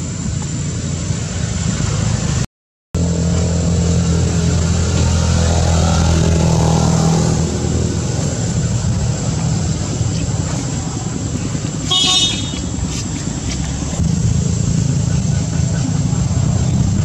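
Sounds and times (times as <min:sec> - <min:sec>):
motorcycle engine running: 0:03.0 - 0:17.0
short high horn toot: 0:11.9 - 0:12.7.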